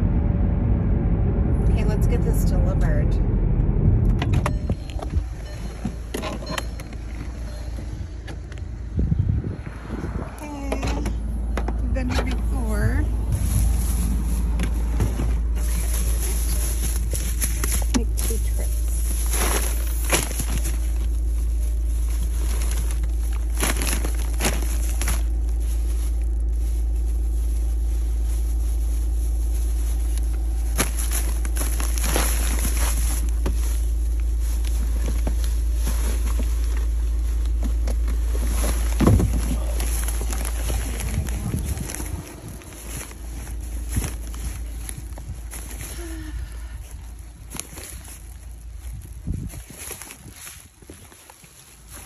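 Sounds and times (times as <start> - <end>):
car road noise rumble: 0.0 - 52.0
plastic bags rustling: 11.2 - 52.0.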